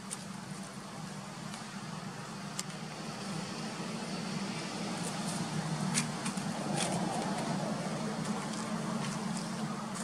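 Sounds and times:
distant motor hum: 0.0s - 10.0s
dry leaves clicking underfoot: 4.5s - 10.0s.

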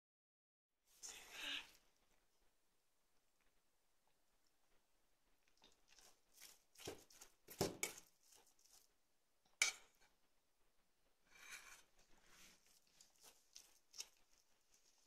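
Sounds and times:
soft rustles and scrapes: 5.6s - 9.0s, 11.4s - 15.0s.

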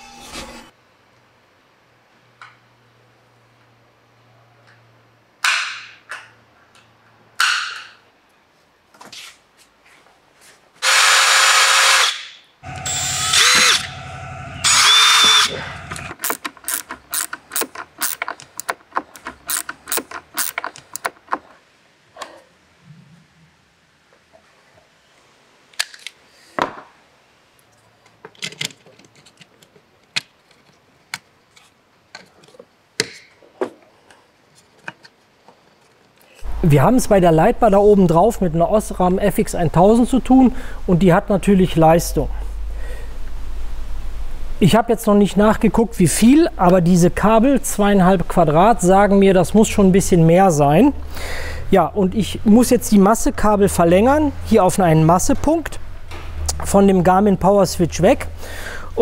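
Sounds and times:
power drill whining: 10.8s - 16.1s.

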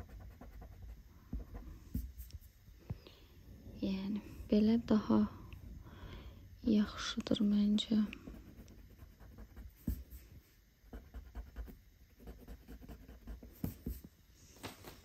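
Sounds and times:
pencil scratching on paper: 0.0s - 2.3s, 8.2s - 10.2s, 10.9s - 14.1s.

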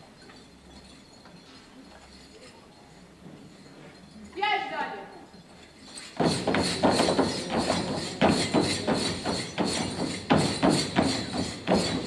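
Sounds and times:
feet stamping on a stage: 6.0s - 12.0s.

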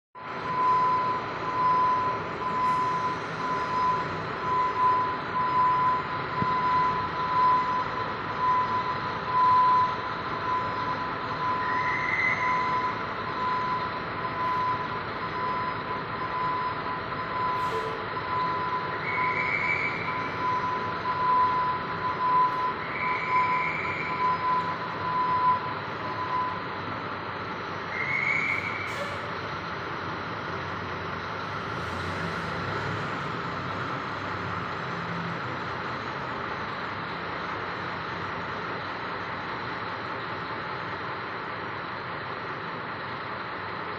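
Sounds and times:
reversing alarm beeping: 0.2s - 27.0s
bus diesel engine running: 0.2s - 43.9s.

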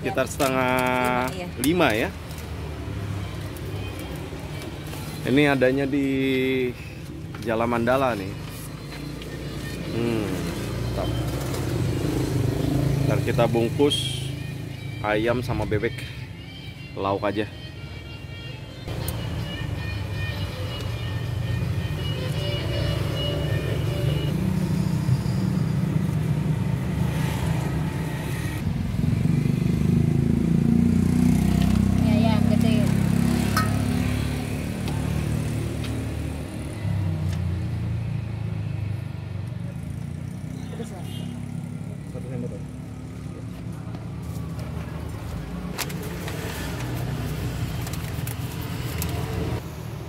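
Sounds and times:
motorcycle engine drone: 9.8s - 13.4s.

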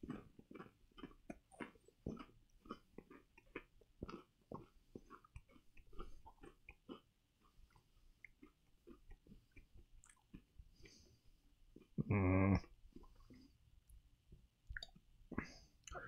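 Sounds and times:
person chewing crunchy crackers: 0.0s - 13.7s.

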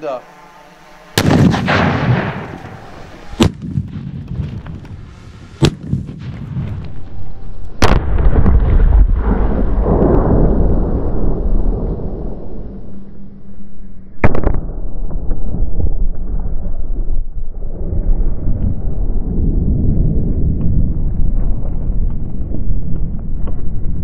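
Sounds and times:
long low rumble: 0.2s - 24.0s
explosive blast: 1.2s - 4.8s, 5.4s - 13.1s, 14.2s - 21.4s
sharp explosive cracks: 1.2s - 7.1s, 7.8s - 12.7s, 14.2s - 17.7s.

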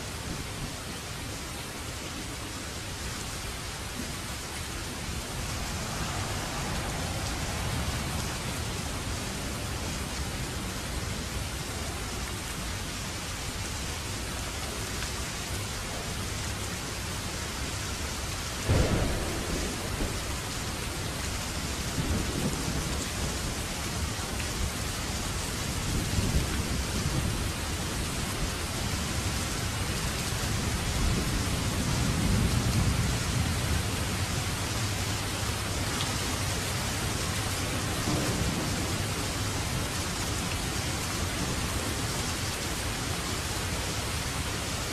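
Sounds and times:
steady rain falling: 0.0s - 44.9s
deep thunder rumbles: 18.6s - 23.4s, 38.1s - 39.8s.

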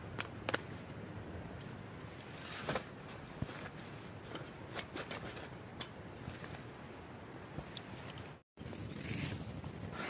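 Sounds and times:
gear rustling: 1.6s - 7.0s.

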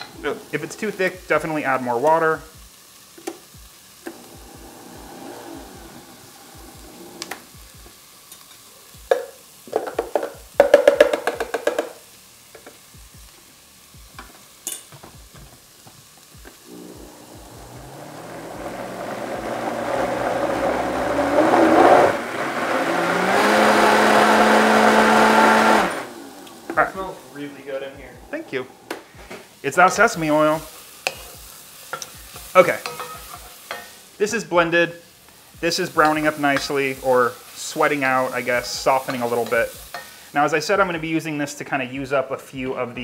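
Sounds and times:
faint sizzling in pot: 0.0s - 43.0s
blender motor whine: 4.0s - 7.6s, 16.6s - 29.0s.

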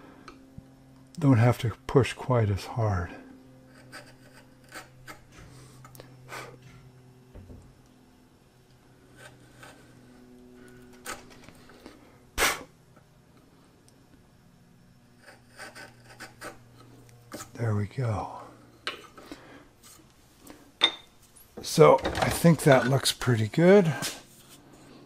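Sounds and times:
chisel scraping wood: 3.7s - 6.0s, 9.1s - 10.1s, 10.7s - 11.8s, 15.2s - 17.6s.

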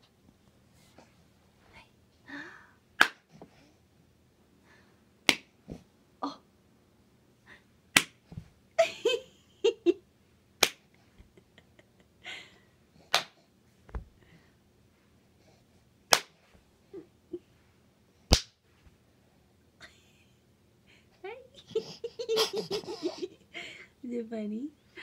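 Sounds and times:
sharp hand claps: 3.0s - 3.2s, 5.3s - 5.5s, 8.0s - 8.2s, 10.6s - 10.8s, 13.1s - 13.4s, 16.1s - 16.4s, 18.3s - 18.6s
baby cooing: 21.7s - 23.3s.

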